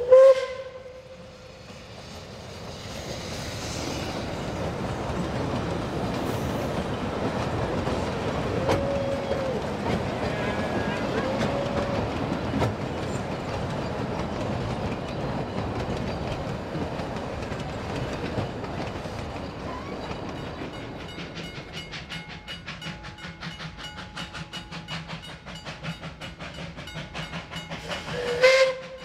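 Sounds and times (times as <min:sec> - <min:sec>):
steam locomotive whistle blast: 0:00.0 - 0:01.5, 0:27.1 - 0:29.0
train wheels clattering on rails: 0:01.3 - 0:29.0.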